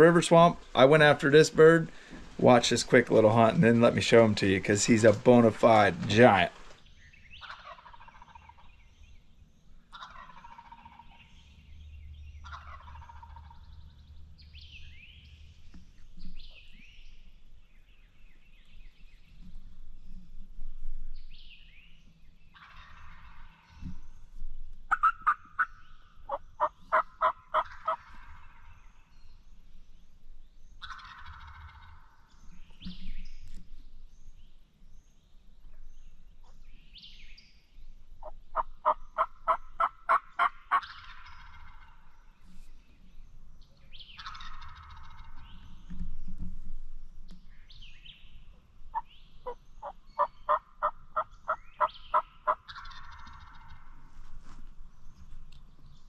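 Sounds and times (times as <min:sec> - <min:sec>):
hen turkey yelps: 0:07.4 - 0:08.6, 0:09.9 - 0:11.1, 0:12.4 - 0:13.6, 0:24.9 - 0:28.3, 0:30.8 - 0:31.8, 0:38.2 - 0:41.8, 0:49.8 - 0:53.7
turkey gobble: 0:07.4 - 0:08.7, 0:09.9 - 0:11.3, 0:12.4 - 0:13.6, 0:22.6 - 0:23.6, 0:24.9 - 0:28.7, 0:30.8 - 0:32.1, 0:38.2 - 0:42.0, 0:44.2 - 0:45.4, 0:49.0 - 0:53.8.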